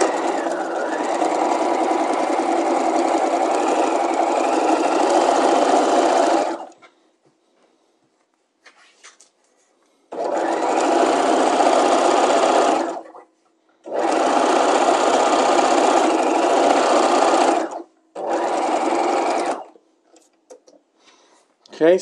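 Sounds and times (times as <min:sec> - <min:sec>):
electric sewing machine stitching: 0:00.0 - 0:06.8, 0:10.1 - 0:13.2, 0:13.9 - 0:19.8.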